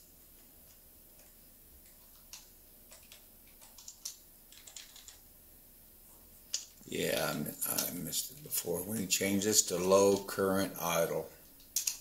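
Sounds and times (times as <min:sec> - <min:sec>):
keyboard keys clicking: 0:01.2 - 0:05.2.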